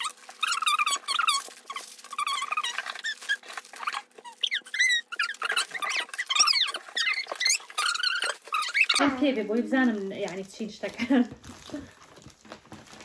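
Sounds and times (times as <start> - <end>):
plastic wrappers crinkling: 0.0 - 13.0.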